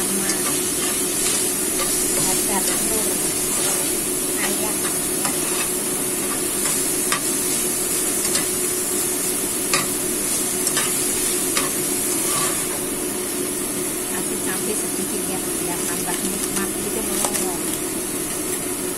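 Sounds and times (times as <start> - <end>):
spatula scraping pan: 0.0 - 8.6, 9.7 - 12.8
meat sizzling in oil: 0.0 - 18.9.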